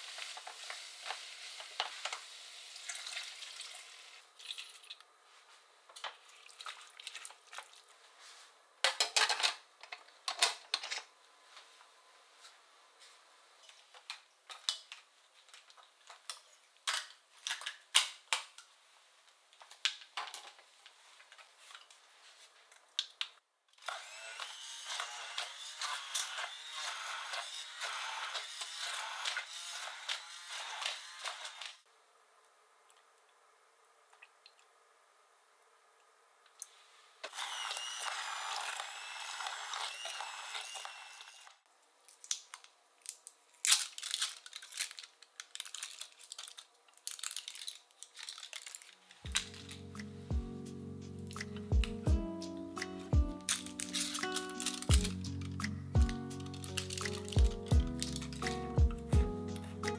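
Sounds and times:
vegetables sizzling in butter: 0:00.0 - 0:04.2
blender parts clicking and clattering: 0:08.8 - 0:11.1, 0:53.4 - 0:55.6, 0:56.4 - 0:57.4
hand blender running: 0:23.8 - 0:31.8, 0:37.3 - 0:41.6.

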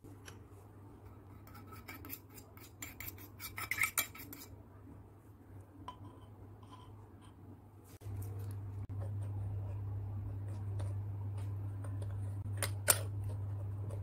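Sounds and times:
metal spoon scraping brass bowl: 0:01.3 - 0:04.5.

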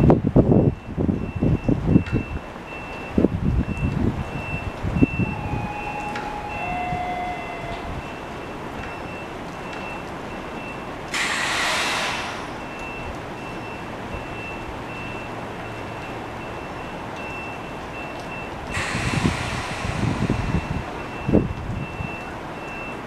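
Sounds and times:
high single-pitched beep: 0:04.4 - 0:09.2
air brakes hissing: 0:11.1 - 0:12.6, 0:18.7 - 0:21.1.

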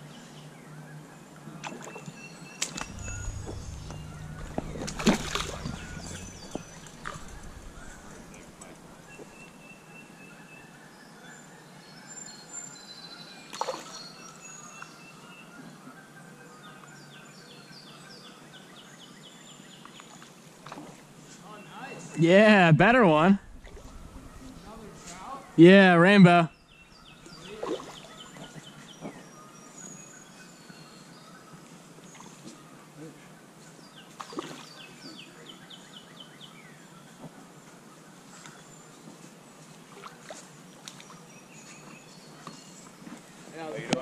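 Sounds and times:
steady outdoor hiss: 0:00.0 - 0:15.5, 0:16.1 - 0:44.0
songbird singing: 0:00.0 - 0:20.3, 0:21.4 - 0:32.8.

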